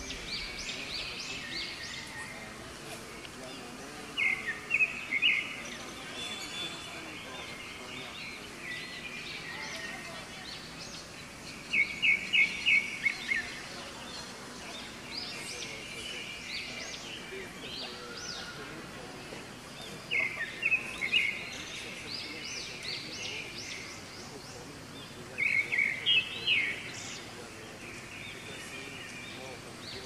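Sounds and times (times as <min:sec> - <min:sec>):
birds chirping rapidly: 0:00.0 - 0:30.0
whistled bird notes: 0:04.1 - 0:18.8.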